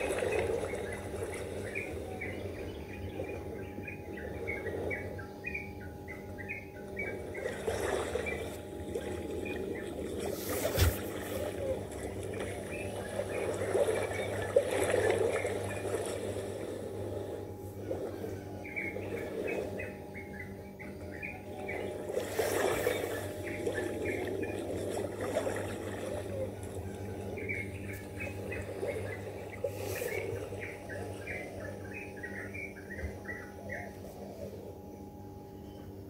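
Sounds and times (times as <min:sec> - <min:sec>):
steady low hum: 0:00.0 - 0:36.0
sea water washing on sand: 0:07.4 - 0:17.2, 0:22.0 - 0:26.4.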